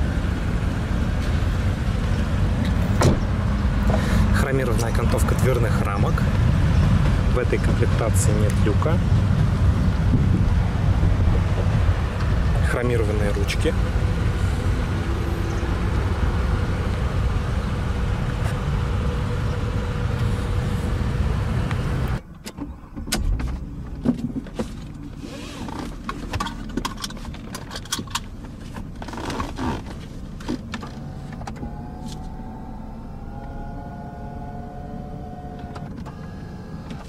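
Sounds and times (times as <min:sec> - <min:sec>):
loud rumbling: 0:00.0 - 0:22.2
power window motor whirring: 0:30.8 - 0:37.0.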